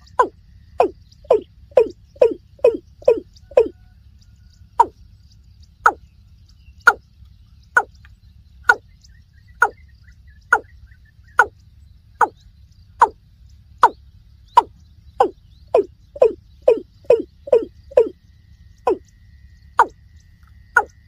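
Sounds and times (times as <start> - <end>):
bird calling falling notes: 0.0 - 3.8, 14.6 - 18.1.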